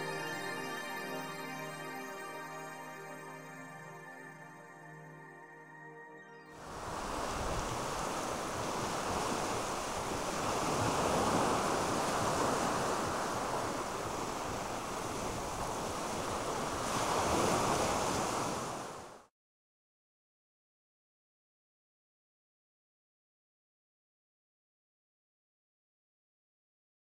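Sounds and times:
surf breaking on sandy beach: 6.7 - 19.2.

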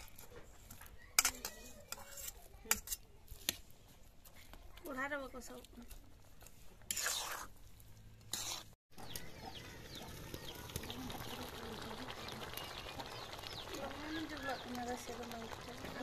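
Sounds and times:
metal spatula scraping wok: 0.0 - 4.5, 5.4 - 9.2
curry simmering with tiny pops: 0.0 - 16.0.

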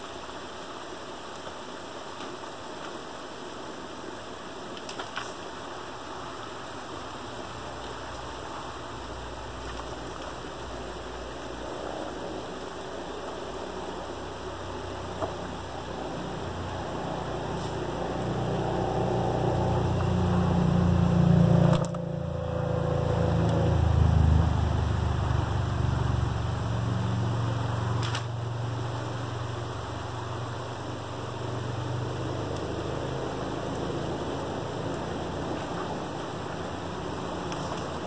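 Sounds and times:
creek water running: 0.0 - 38.0
low fluctuating rumble: 8.3 - 38.0.

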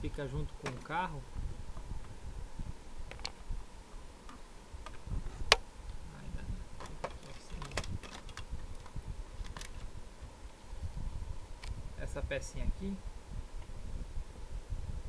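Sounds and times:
plastic printer parts clicking: 6.8 - 9.8.

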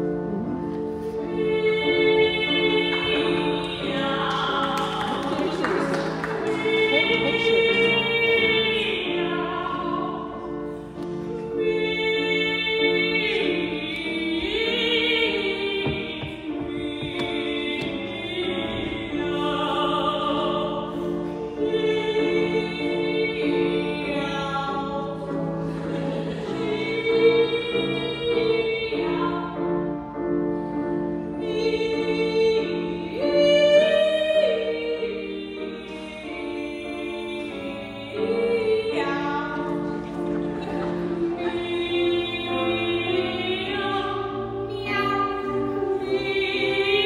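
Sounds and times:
grand piano accompaniment: 0.0 - 47.0
two women singing operatic duet: 0.0 - 47.0.

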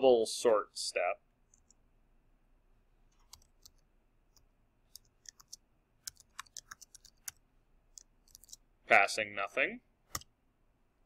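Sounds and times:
computer keyboard typing: 3.1 - 8.6.

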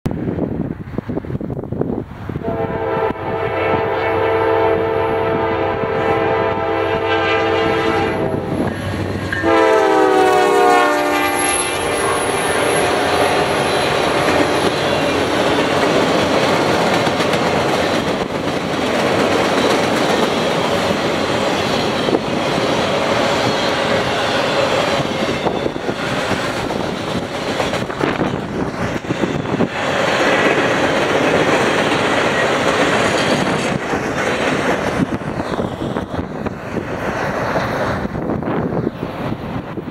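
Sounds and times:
locomotive air horn: 2.4 - 15.2
train wheels clattering on rails: 11.4 - 39.9.

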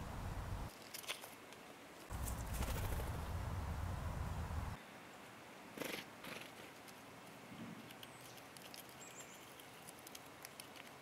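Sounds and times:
squirrel rustling: 0.4 - 4.8, 5.8 - 11.0
squirrel gnawing clicks: 7.8 - 11.0.

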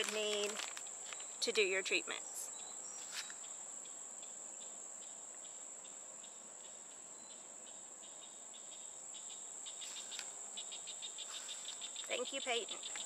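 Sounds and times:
plastic packaging rustling: 0.0 - 1.3
insects chirping: 0.0 - 13.0.

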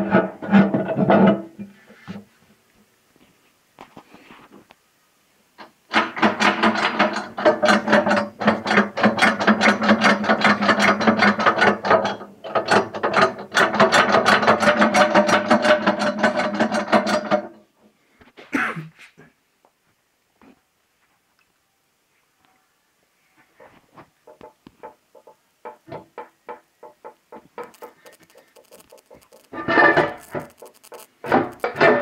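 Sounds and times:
metallic ratcheting rattle: 5.9 - 17.5, 27.6 - 32.0.

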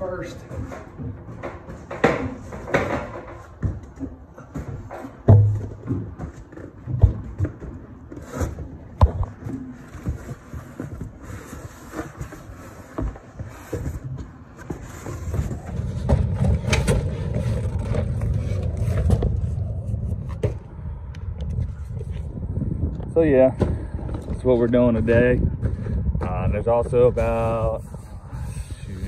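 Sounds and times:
metal ladder clanking: 0.0 - 7.6
cardboard boxes scraping: 5.9 - 20.4
low rumbling scrape: 15.2 - 29.0.

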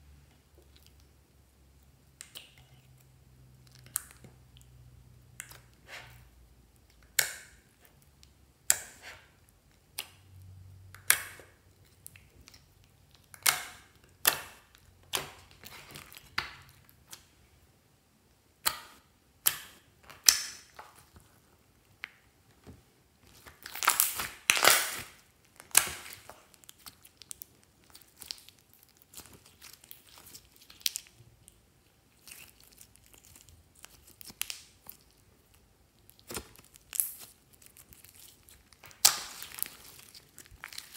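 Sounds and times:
slime popping and crackling: 23.2 - 40.9.

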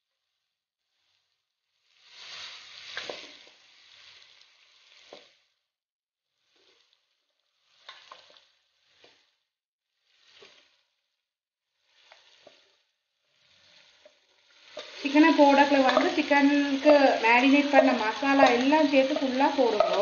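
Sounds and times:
chicken sizzling in hot oil: 0.0 - 20.0
spoon knocking steel bowl: 19.7 - 20.0.

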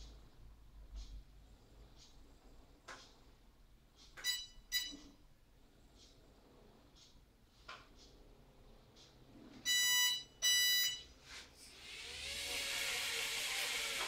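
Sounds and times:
quadcopter motors whirring: 11.7 - 14.0.

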